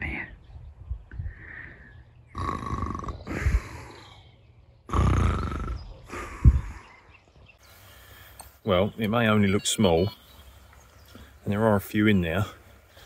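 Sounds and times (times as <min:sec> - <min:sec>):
loud snoring: 0:02.3 - 0:03.5, 0:04.9 - 0:05.9.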